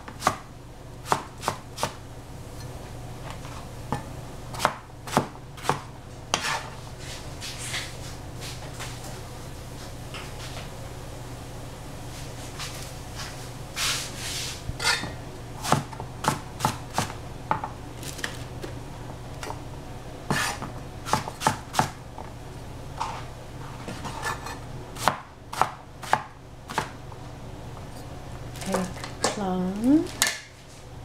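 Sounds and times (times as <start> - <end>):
knife chopping on cutting board: 0.0 - 0.4, 1.0 - 2.0, 3.9 - 6.7, 14.8 - 17.7, 20.3 - 22.0, 23.9 - 27.0
knife scraping: 6.3 - 7.9, 12.6 - 15.9, 20.3 - 21.5, 23.0 - 25.1.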